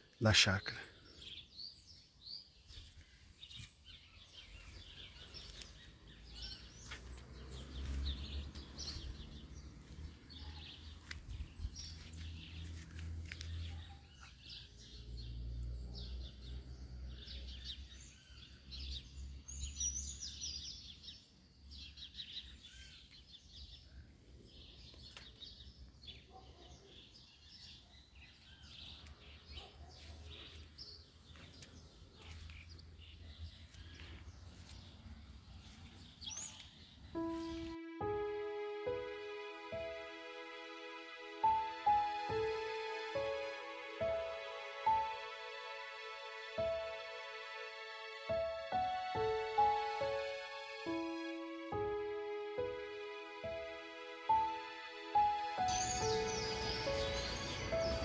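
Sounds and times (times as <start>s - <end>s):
small birds chirping: 0.0s - 39.0s, 53.4s - 58.0s.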